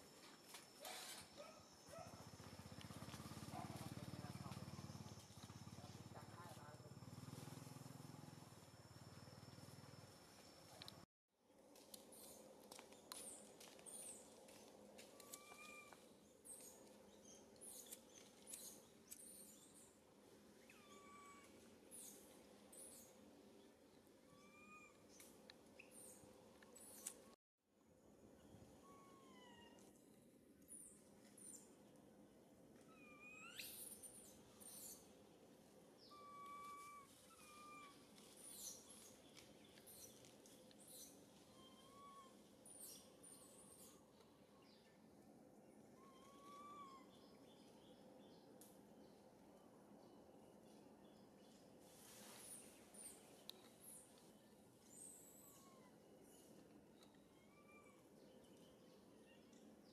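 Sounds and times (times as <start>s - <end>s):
whistled animal calls: 36.0s - 38.0s, 41.5s - 42.4s.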